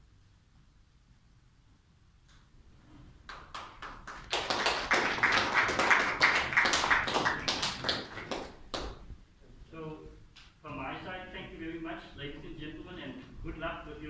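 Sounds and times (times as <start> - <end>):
people clapping: 3.2 - 9.2.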